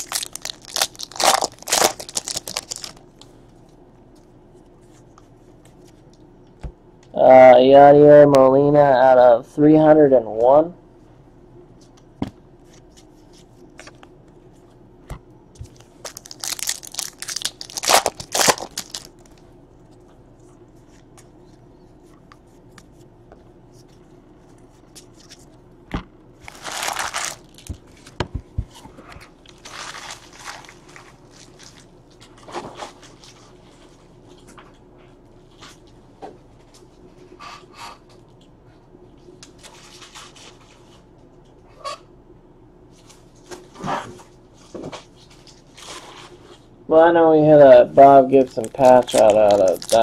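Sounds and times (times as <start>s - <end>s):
packaging crinkling and rustling: 0.0s - 3.0s, 15.6s - 19.4s, 26.4s - 28.2s, 29.4s - 33.4s, 48.3s - 50.0s.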